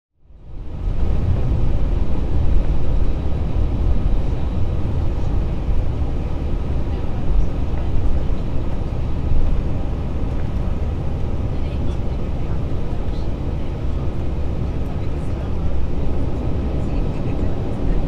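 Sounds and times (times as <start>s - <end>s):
airliner cabin engine rumble: 0.2s - 18.0s.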